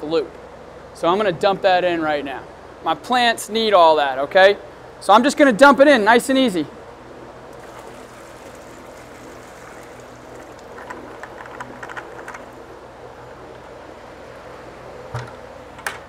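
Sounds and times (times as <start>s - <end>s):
sludge pouring from bucket: 7.6s - 10.6s
bucket thump set down: 15.1s - 15.4s.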